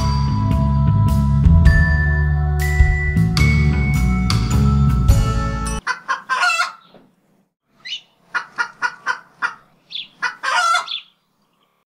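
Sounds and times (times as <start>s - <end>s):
chicken clucking: 5.8s - 7.0s, 7.8s - 11.1s
chicken squawk: 5.8s - 7.0s, 7.8s - 11.2s.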